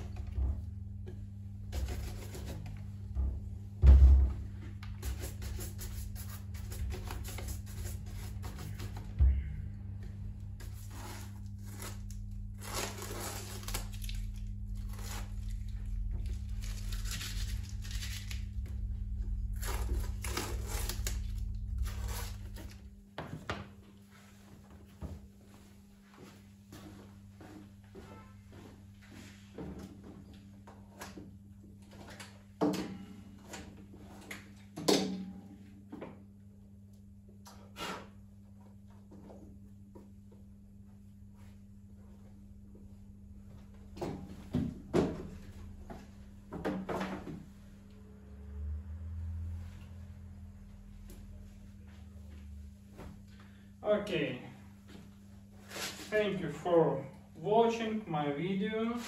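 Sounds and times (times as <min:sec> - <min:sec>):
steady low hum: 0:00.0 - 0:59.0
dull thump: 0:03.1 - 0:04.6.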